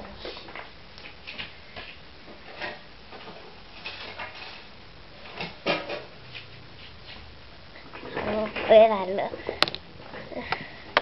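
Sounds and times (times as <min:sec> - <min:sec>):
objects knocking and clattering: 0:05.2 - 0:06.1.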